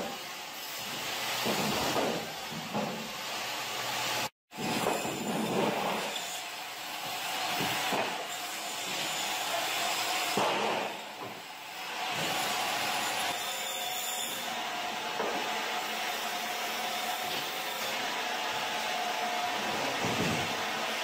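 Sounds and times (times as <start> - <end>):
band saw cutting frozen fish: 4.6 - 15.0.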